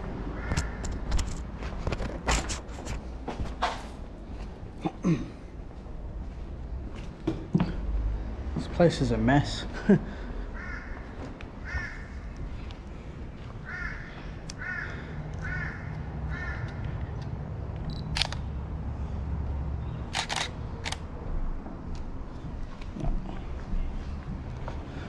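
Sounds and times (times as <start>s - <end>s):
camera shutter clicking: 17.9s - 18.4s, 20.1s - 21.0s.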